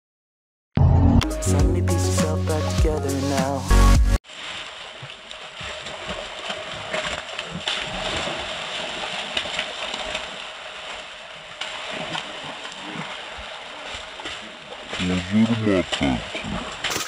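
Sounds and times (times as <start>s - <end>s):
fish splashing in water: 4.2s - 17.0s.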